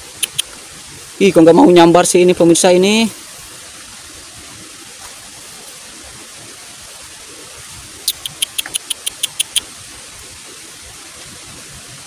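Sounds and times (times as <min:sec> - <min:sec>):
steady hiss: 0:00.0 - 0:12.0
small animal chirping: 0:00.1 - 0:00.5, 0:08.0 - 0:09.7.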